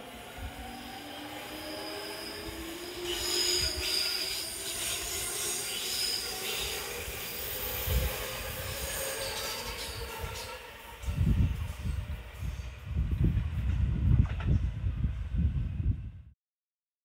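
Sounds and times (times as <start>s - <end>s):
train wheels squealing: 0.5s - 13.0s.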